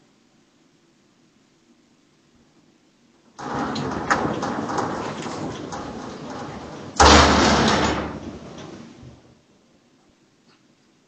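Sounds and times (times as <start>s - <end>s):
loud thud: 3.4s - 9.2s
rattling and knocking: 3.4s - 9.2s.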